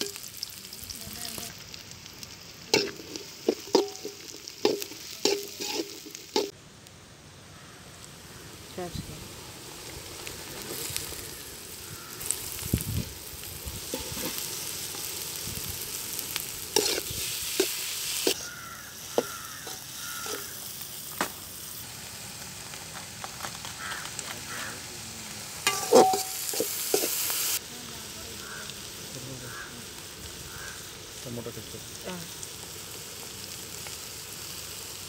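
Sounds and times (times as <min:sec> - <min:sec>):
vegetables sizzling in a pan: 0:00.0 - 0:06.6, 0:07.3 - 0:35.0
metal ladle scraping a pan: 0:02.8 - 0:06.5, 0:16.8 - 0:18.5, 0:19.2 - 0:20.5, 0:25.6 - 0:27.3.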